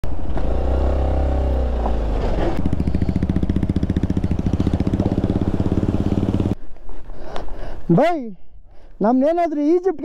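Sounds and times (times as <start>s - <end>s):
motorcycle engine running: 0.1s - 6.6s.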